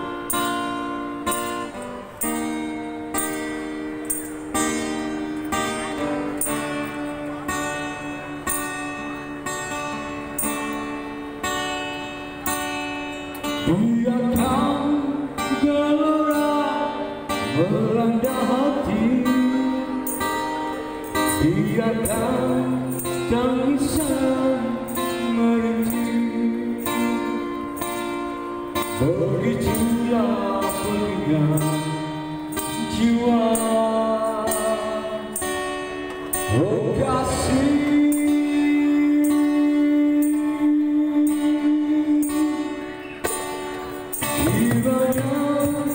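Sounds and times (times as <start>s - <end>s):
acoustic guitar strumming: 0.0s - 45.9s
man singing into a microphone: 12.0s - 45.9s.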